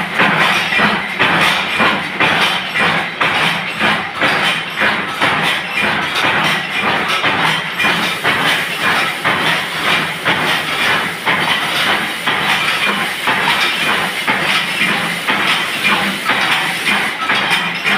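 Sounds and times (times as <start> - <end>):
machinery clattering: 0.0 - 17.9
steady hiss: 8.0 - 17.2.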